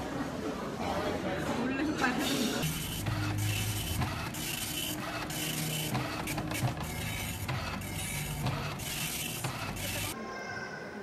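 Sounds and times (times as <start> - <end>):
dot-matrix printer printing: 2.6 - 10.2.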